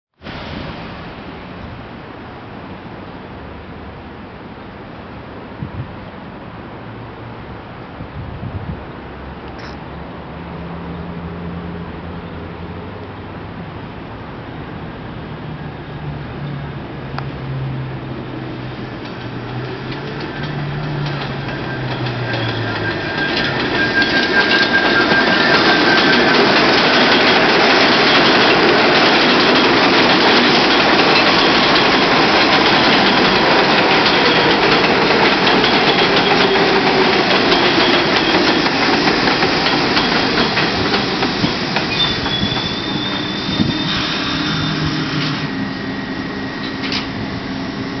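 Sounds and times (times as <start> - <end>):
train wheels clacking over rails: 18.2 - 45.7, 46.5 - 48.0
train whine falling in pitch: 18.6 - 48.0
brake squeal: 19.0 - 48.0.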